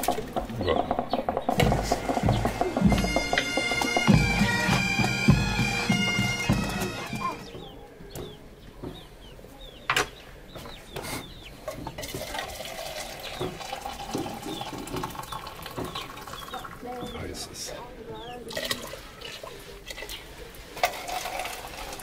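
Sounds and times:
dull knocks: 0.0 - 9.2.

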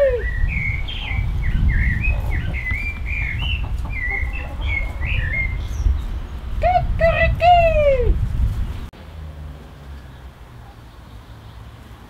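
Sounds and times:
birds chirping: 0.0 - 8.9.

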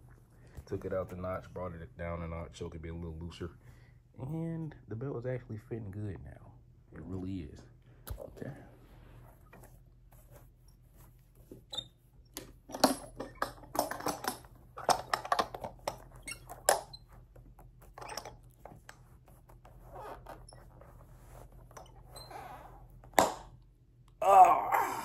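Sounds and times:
leather belt rustling and creaking: 13.7 - 23.0.

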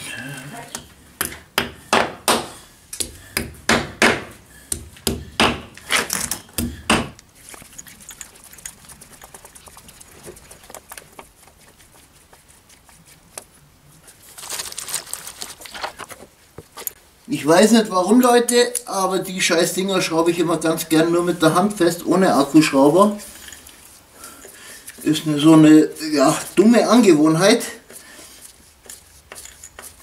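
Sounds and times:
hammer striking concrete: 0.7 - 5.7
scraping and rustling: 7.2 - 17.0, 23.2 - 30.0.

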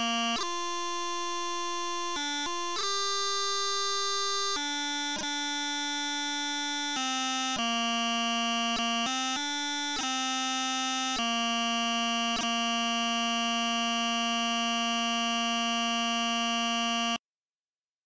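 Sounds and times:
synthesized bagpipe chanter: 0.0 - 17.2.

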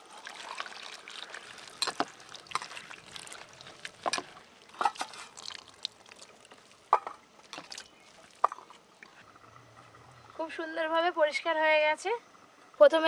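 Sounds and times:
water splashing and dripping: 0.0 - 9.2.

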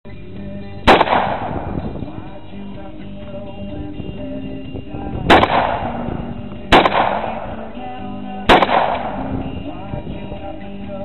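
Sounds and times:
background music: 0.1 - 11.0
rifle shots: 0.8 - 1.8, 5.3 - 7.7, 8.5 - 9.3.

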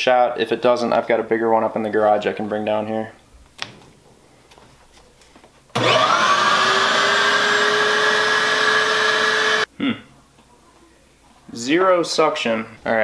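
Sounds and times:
shop vac motor whine: 5.8 - 9.7.

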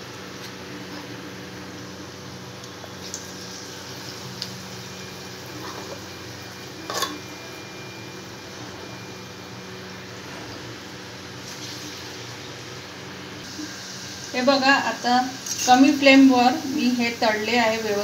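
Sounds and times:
food deep-frying in oil: 0.0 - 18.0.

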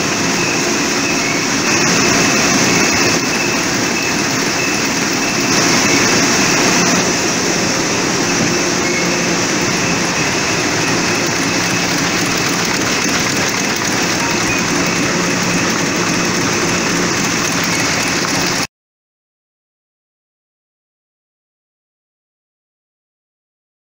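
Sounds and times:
printing press mechanical din: 0.0 - 18.7.

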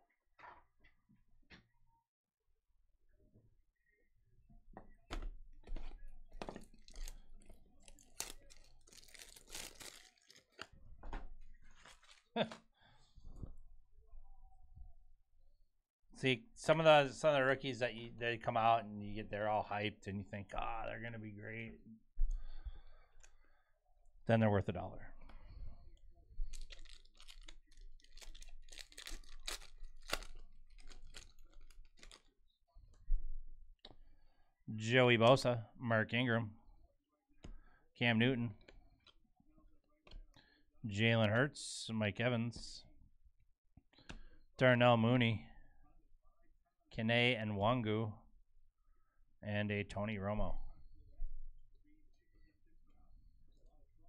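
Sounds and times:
plastic packaging crinkling and tearing: 6.5 - 10.7, 11.6 - 12.5, 26.5 - 32.3.

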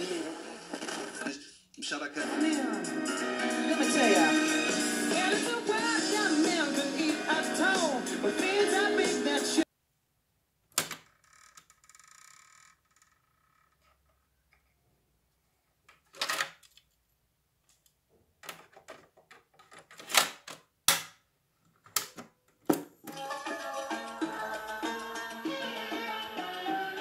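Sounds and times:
music from speakers: 2.2 - 9.6, 23.1 - 27.0.

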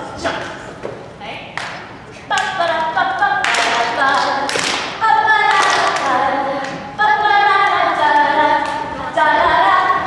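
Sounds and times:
children singing: 2.4 - 10.0.

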